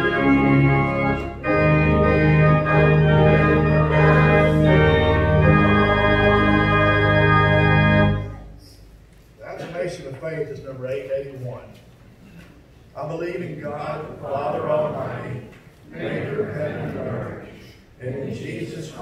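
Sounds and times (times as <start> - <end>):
church organ playing chords: 0.0 - 8.6.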